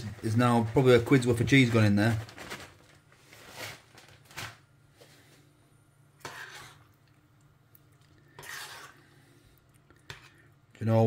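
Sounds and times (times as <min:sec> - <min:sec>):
cheese rustling from plastic bag: 0:00.0 - 0:05.4
utensil scraping saucepan: 0:06.2 - 0:07.0, 0:08.3 - 0:09.3, 0:10.0 - 0:10.5.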